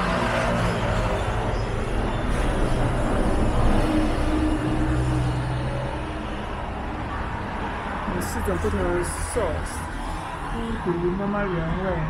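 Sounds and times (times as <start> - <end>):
road noise hum: 0.0 - 12.0
vehicle engines running: 0.0 - 12.0.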